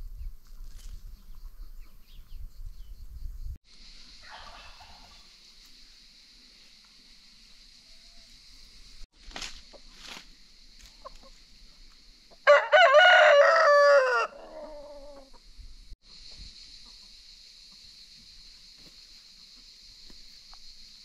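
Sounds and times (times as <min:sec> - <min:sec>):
steady high hiss: 0:03.7 - 0:12.4
rooster crowing: 0:12.4 - 0:15.3.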